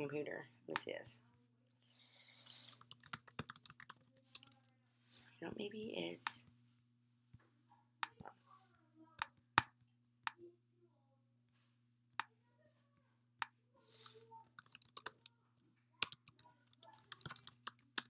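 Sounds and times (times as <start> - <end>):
keyboard typing: 2.4 - 4.7, 13.9 - 15.3, 16.0 - 18.0.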